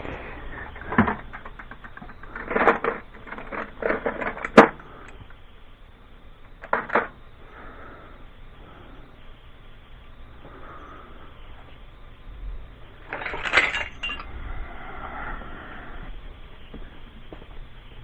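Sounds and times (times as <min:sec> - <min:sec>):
metal hand tools clinking: 0:13.1 - 0:14.3.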